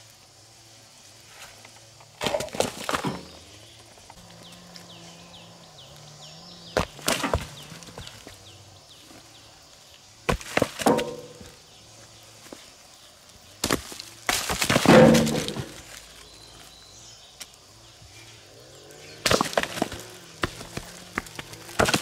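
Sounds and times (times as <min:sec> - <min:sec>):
hard knocks and thuds: 0:06.7 - 0:08.2, 0:10.3 - 0:11.6, 0:13.6 - 0:16.0.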